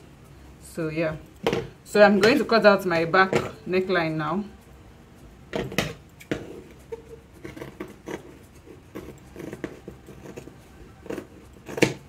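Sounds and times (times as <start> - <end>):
scissors snipping fabric: 7.4 - 12.0.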